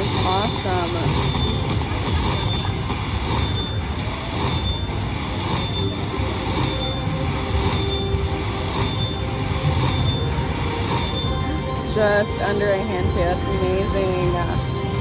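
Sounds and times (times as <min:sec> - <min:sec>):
slot machine ringing strikes: 0:00.0 - 0:15.0.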